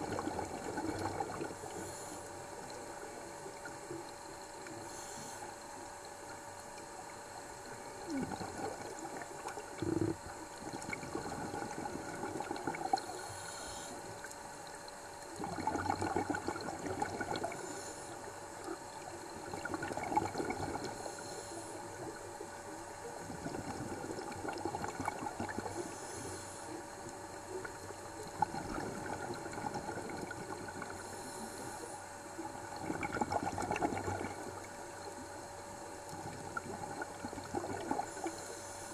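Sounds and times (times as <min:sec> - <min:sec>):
faint steady tone: 0:00.0 - 0:38.9
underwater exhaust bubbles gurgling: 0:00.0 - 0:38.9
water hiss: 0:00.8 - 0:02.7, 0:04.7 - 0:05.5, 0:11.1 - 0:14.3, 0:25.2 - 0:26.8.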